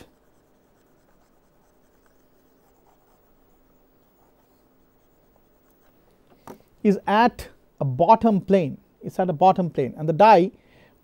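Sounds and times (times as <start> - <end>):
stylus scratching on pen tablet: 0.0 - 6.0
steady low hum: 0.0 - 11.0.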